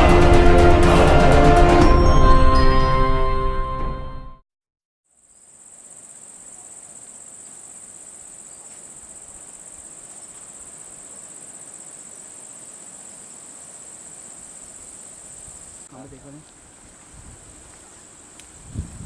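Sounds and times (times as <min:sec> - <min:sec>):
high-pitched insect chorus: 0:05.1 - 0:19.0.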